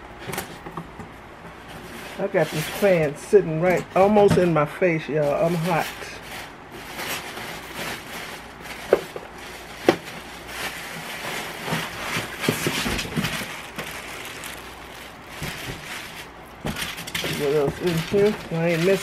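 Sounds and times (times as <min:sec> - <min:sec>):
plastic packaging crinkling: 0:05.2 - 0:19.0.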